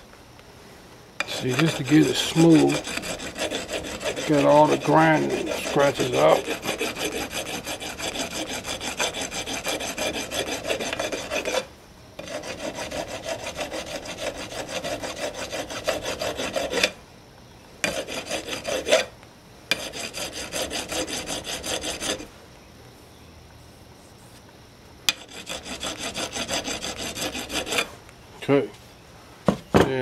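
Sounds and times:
hand file rasping on metal: 0:01.2 - 0:17.0, 0:17.8 - 0:19.1, 0:19.7 - 0:22.3, 0:25.1 - 0:27.9.

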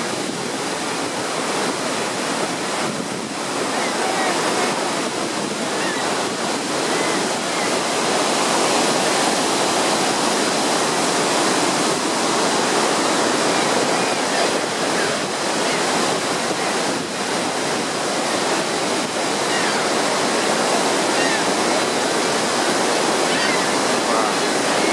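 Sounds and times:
waterfall rushing: 0:00.0 - 0:24.9.

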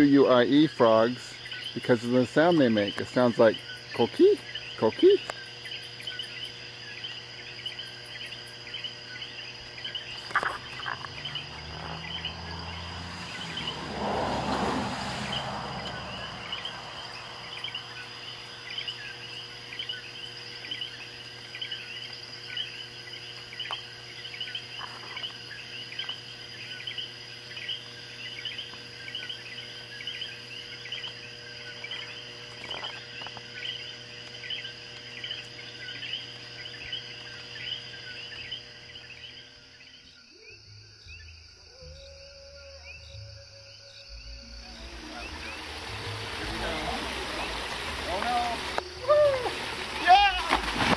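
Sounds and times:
frogs calling in chorus: 0:00.0 - 0:50.9
broad rushing noise: 0:44.6 - 0:50.9.

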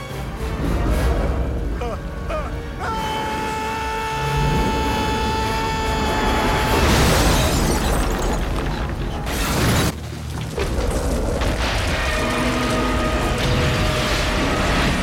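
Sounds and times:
orchestral film music: 0:00.0 - 0:07.3.

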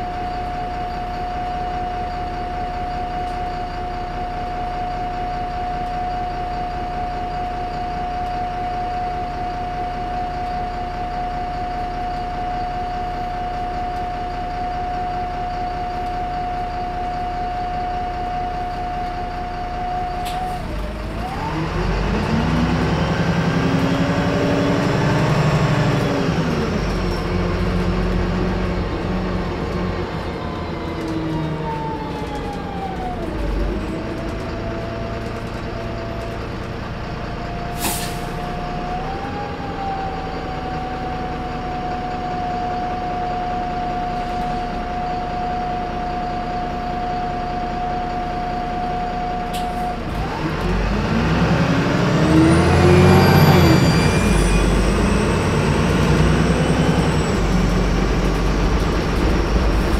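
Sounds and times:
bus diesel engine: 0:00.0 - 0:59.9
air brake hiss: 0:37.7 - 0:38.4.

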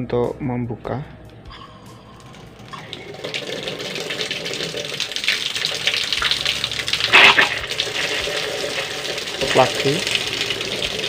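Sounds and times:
water gushing from garden tap: 0:02.2 - 0:11.0.

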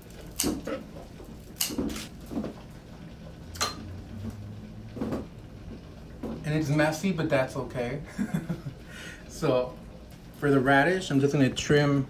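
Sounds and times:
scissors snipping: 0:01.6 - 0:02.1.

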